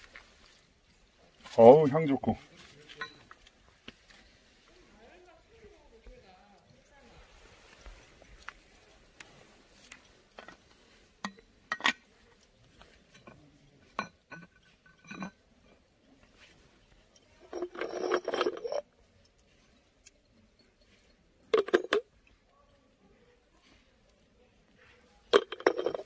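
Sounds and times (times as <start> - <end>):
coffee gear clinking: 13.0 - 15.8, 17.1 - 22.2, 25.2 - 26.0
rattling clatter: 17.4 - 18.8, 25.4 - 26.0.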